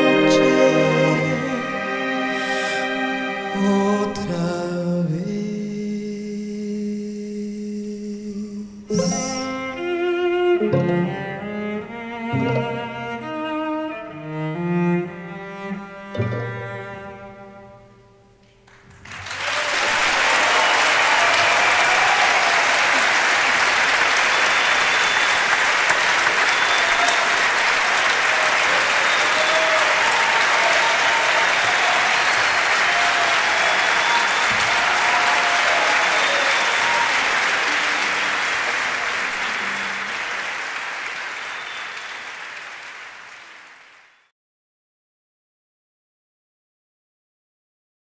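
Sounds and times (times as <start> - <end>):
audience applauding: 18.7 - 44.3.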